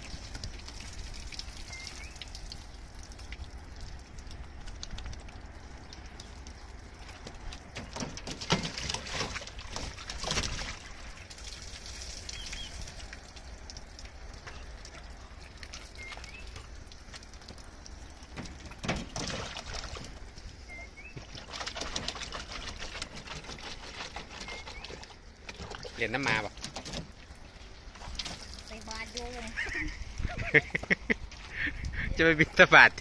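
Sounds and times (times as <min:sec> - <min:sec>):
paws splashing through water: 0:00.0 - 0:33.0
faint bird chirps: 0:01.6 - 0:02.3, 0:20.6 - 0:21.2, 0:24.3 - 0:25.1.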